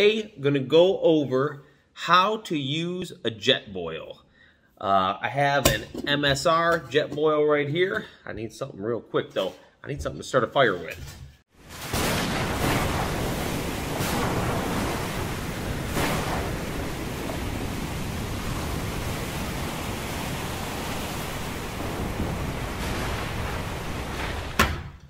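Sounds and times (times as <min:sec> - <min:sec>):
ocean surf: 0:11.7 - 0:24.6
wind roaring: 0:11.9 - 0:24.7.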